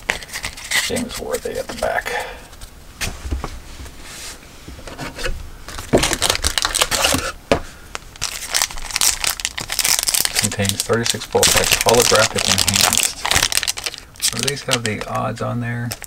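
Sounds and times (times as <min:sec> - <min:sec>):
wrapper crinkling and tearing: 0:05.7 - 0:16.0.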